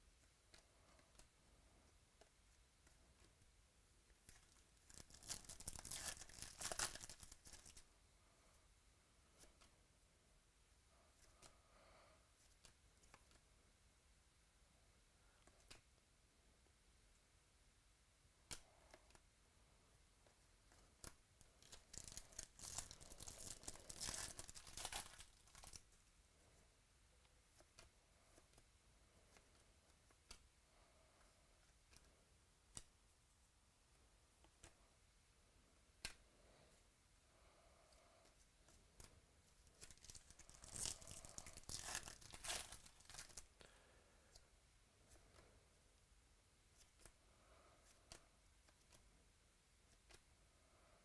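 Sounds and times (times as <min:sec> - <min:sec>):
foil wrapper tearing and crinkling: 0:04.9 - 0:07.8, 0:21.6 - 0:25.8, 0:39.8 - 0:43.4.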